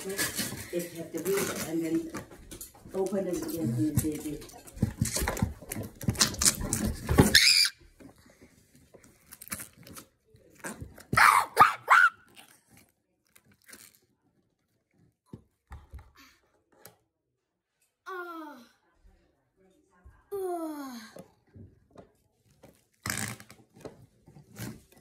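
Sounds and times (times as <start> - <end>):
putty squelching fart-like noises: 23.0 - 23.6.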